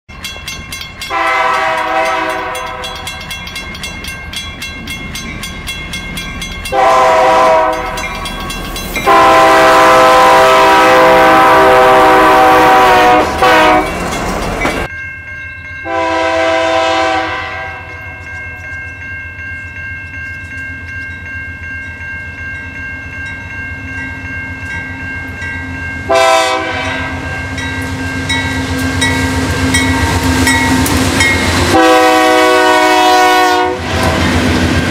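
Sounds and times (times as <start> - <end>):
freight train rumble and clatter: 0.1 - 14.9, 15.7 - 34.9
locomotive air horn blasts: 1.1 - 3.1, 6.7 - 8.0, 9.0 - 14.0, 15.8 - 18.0, 26.1 - 27.6, 31.4 - 34.3.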